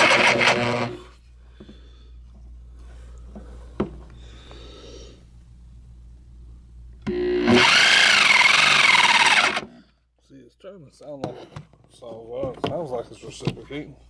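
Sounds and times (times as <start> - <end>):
reciprocating saw motor whining: 0.0 - 1.1, 7.1 - 9.7.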